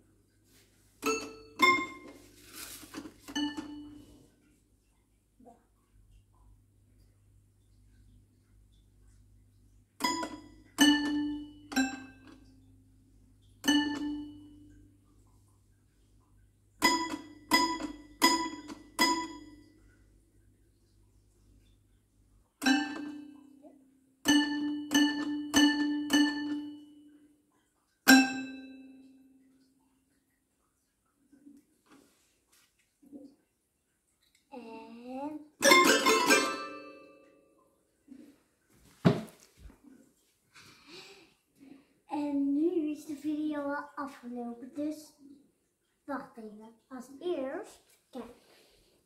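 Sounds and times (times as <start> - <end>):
toy piano single notes: 1.0 - 2.2, 3.3 - 4.0, 10.0 - 12.5, 13.6 - 14.7, 16.8 - 19.7, 22.6 - 23.6, 24.2 - 27.0, 28.1 - 29.2.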